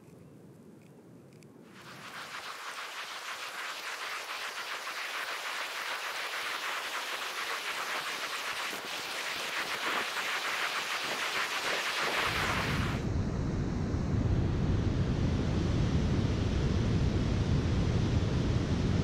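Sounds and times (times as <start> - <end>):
waterfall and rapids rushing: 1.7 - 13.0.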